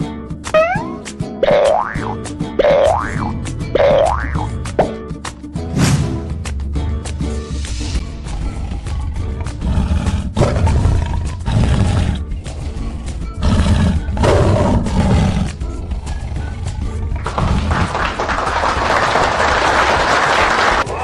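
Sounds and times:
upbeat children's music: 0:00.0 - 0:09.8, 0:15.4 - 0:17.6
cartoon tiger roar: 0:08.3 - 0:15.6.

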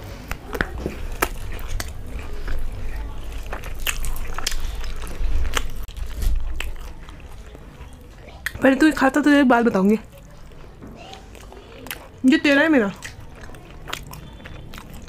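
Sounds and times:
crunchy chewing: 0:00.0 - 0:08.9, 0:09.7 - 0:15.0
bread being torn: 0:00.2 - 0:07.6.

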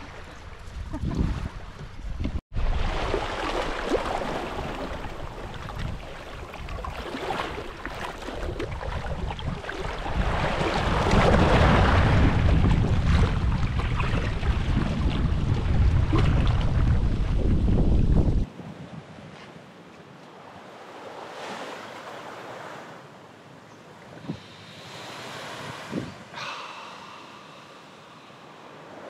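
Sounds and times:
sea water rushing: 0:02.5 - 0:18.3, 0:20.4 - 0:29.0
wind buffeting microphone: 0:04.6 - 0:19.1, 0:25.6 - 0:26.3.

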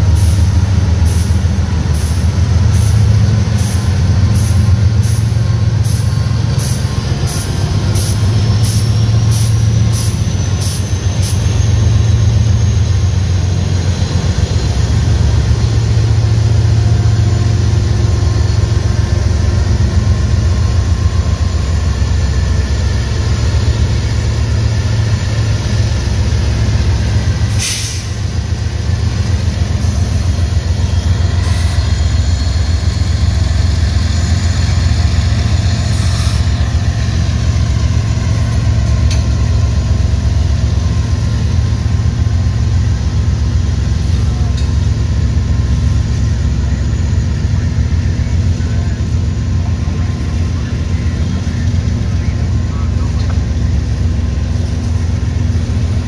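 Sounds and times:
diesel locomotive rumble: 0:00.0 - 0:56.0
brief hiss: 0:27.5 - 0:28.2.

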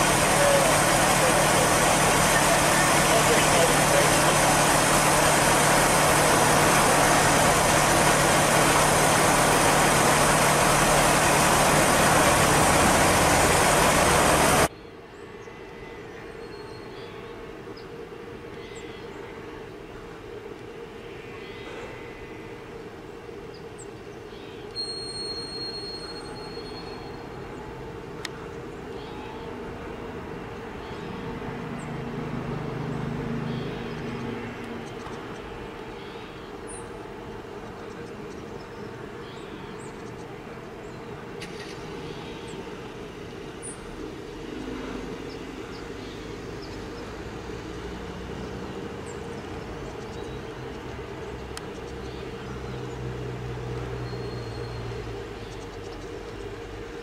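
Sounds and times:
helicopter engine and rotors drone: 0:00.0 - 0:14.7
high steady whine: 0:00.0 - 0:14.7
steady mechanical drone: 0:00.0 - 0:14.7, 0:27.2 - 0:57.0.

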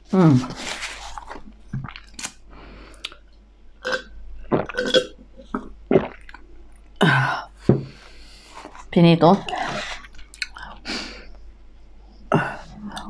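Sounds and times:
mouth and eating noises: 0:00.2 - 0:03.2, 0:08.7 - 0:10.8
person burping loudly: 0:03.8 - 0:05.2.

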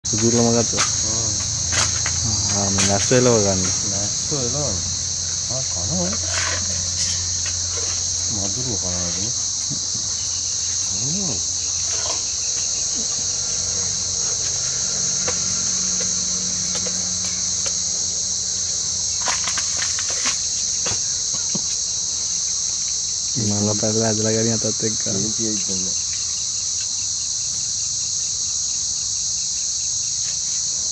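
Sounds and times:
insects chirring: 0:00.0 - 0:30.9
faint voices: 0:10.7 - 0:12.3.

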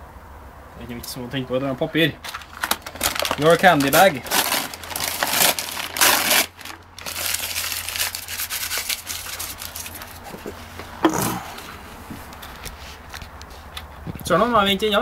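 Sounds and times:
plastic bag crinkling: 0:02.2 - 0:10.5.

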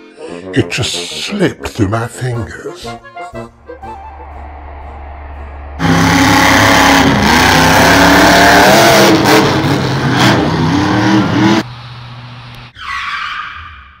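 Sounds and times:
car engine revving: 0:03.5 - 0:12.5.

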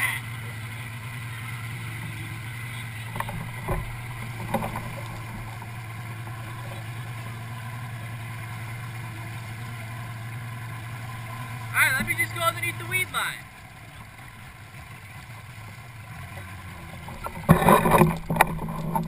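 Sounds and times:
boat engine idling: 0:00.0 - 0:19.0.

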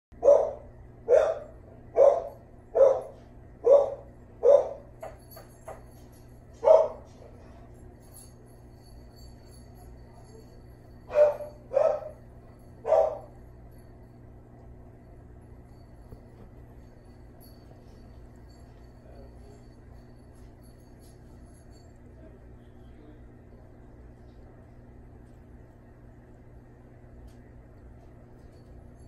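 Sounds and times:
dog barking: 0:00.2 - 0:05.0, 0:06.6 - 0:07.4, 0:11.1 - 0:12.2, 0:12.8 - 0:13.3.

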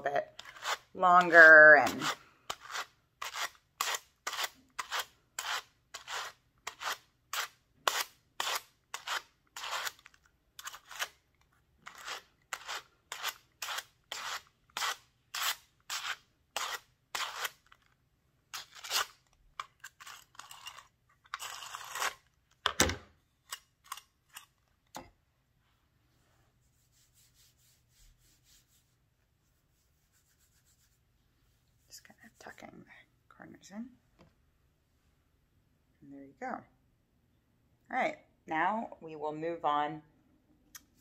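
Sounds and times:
scratchy brush strokes: 0:00.0 - 0:10.1, 0:25.6 - 0:32.8.

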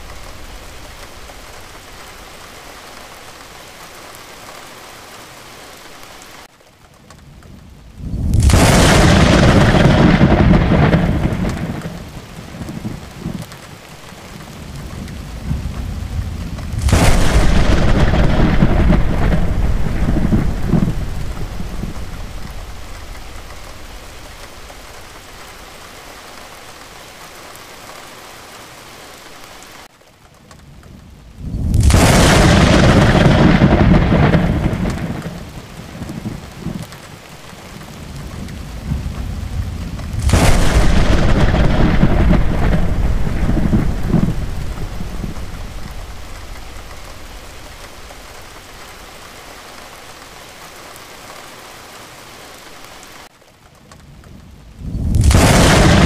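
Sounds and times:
heavy rain: 0:00.0 - 0:56.0
thunderclaps rumbling: 0:07.2 - 0:26.2, 0:30.7 - 0:50.1, 0:54.1 - 0:56.0.

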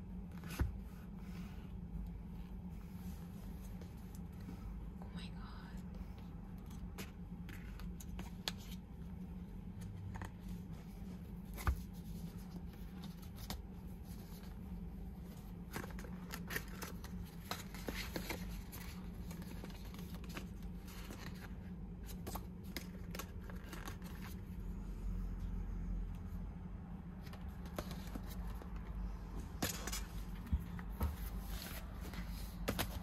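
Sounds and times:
cardboard taps and rustles: 0:29.6 - 0:33.0.

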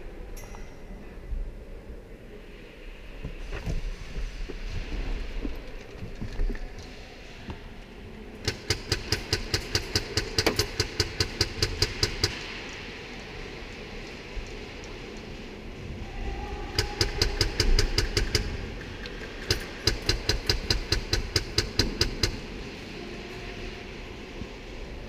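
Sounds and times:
airsoft gun rapid shots: 0:08.5 - 0:12.3.

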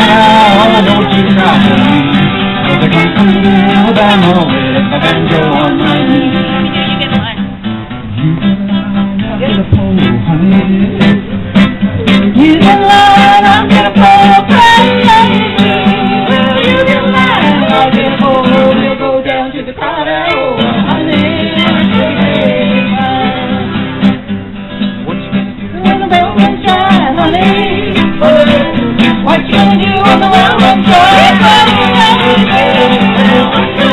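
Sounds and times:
voices singing along: 0:00.0 - 0:07.3, 0:09.2 - 0:24.2, 0:25.6 - 0:33.9
strummed acoustic guitar: 0:00.0 - 0:33.9
person singing lead: 0:12.3 - 0:23.7, 0:25.7 - 0:33.9.

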